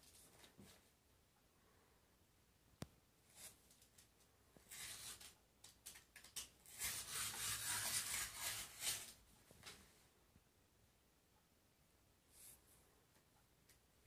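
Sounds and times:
knife blade slicing paper: 0:06.6 - 0:09.2.

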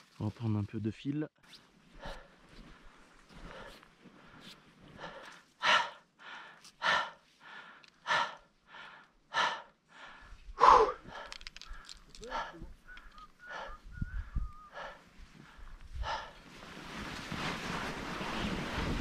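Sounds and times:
heavy rhythmic breathing: 0:02.0 - 0:16.4.

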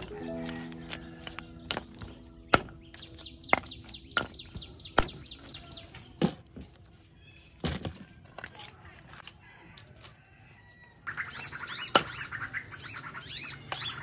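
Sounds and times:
bird chirping: 0:00.0 - 0:06.3, 0:11.1 - 0:14.0
cleaver chopping on wooden block: 0:02.5 - 0:04.4.

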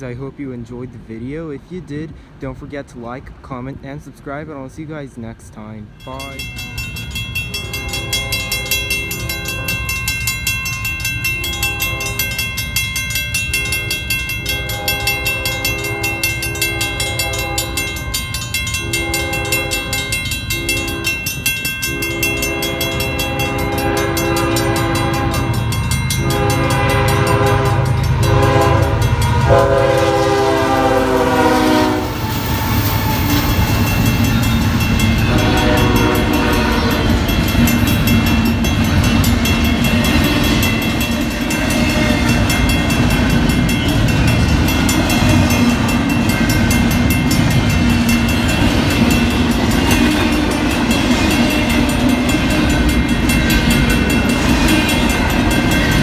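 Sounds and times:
low locomotive rumble: 0:00.0 - 0:56.0
crossing bell ringing: 0:05.7 - 0:56.0
train wheels clickety-clack: 0:06.2 - 0:56.0
train air horn blasts: 0:07.5 - 0:09.9, 0:11.4 - 0:12.4, 0:13.5 - 0:18.1, 0:18.7 - 0:33.8, 0:35.2 - 0:37.2.

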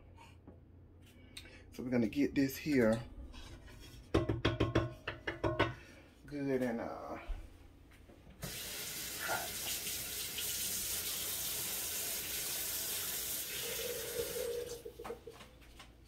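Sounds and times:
faucet running into steel sink: 0:08.4 - 0:15.2.

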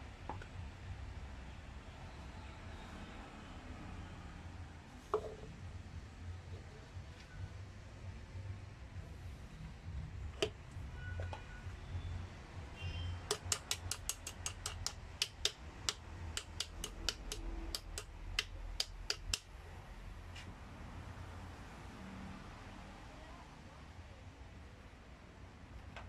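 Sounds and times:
low steady hum: 0:00.0 - 0:21.9
ratchet clicking: 0:13.2 - 0:19.5.

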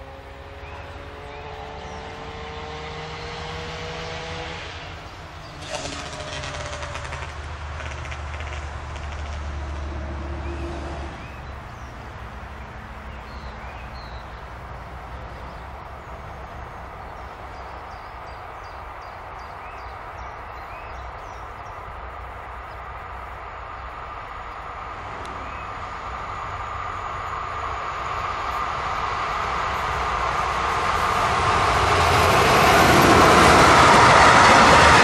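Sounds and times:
birds chirping: 0:00.0 - 0:09.2, 0:10.2 - 0:26.4
distant train rumble: 0:00.0 - 0:35.0
electric locomotive hum: 0:00.0 - 0:35.0.

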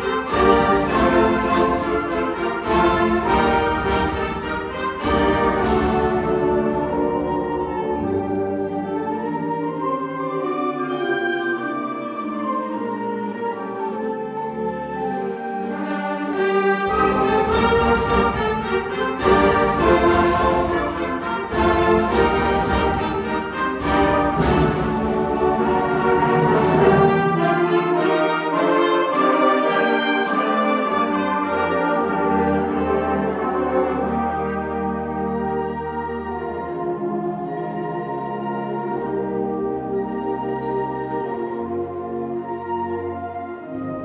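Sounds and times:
concert band playing: 0:16.9 - 0:31.4.

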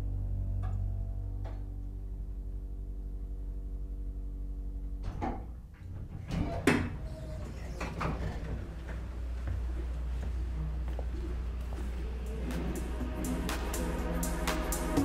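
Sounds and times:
hydraulic elevator hum: 0:00.0 - 0:15.0
elevator doors sliding open: 0:05.1 - 0:09.4.

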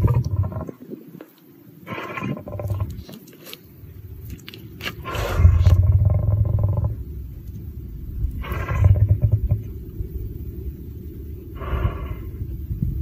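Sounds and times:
lion roaring: 0:08.4 - 0:09.8.

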